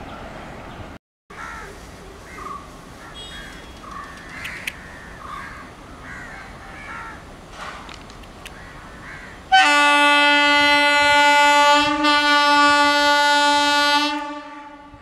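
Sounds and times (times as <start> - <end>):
crows cawing: 1.3 - 7.2, 8.6 - 9.4.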